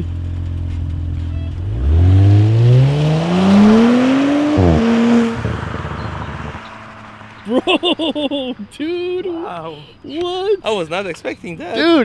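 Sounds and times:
car exhaust accelerating: 0:00.0 - 0:09.3
car engine idling: 0:00.0 - 0:12.0.

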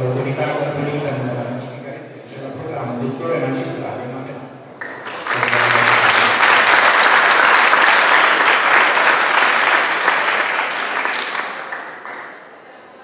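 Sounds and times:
audience applauding: 0:04.8 - 0:12.6.

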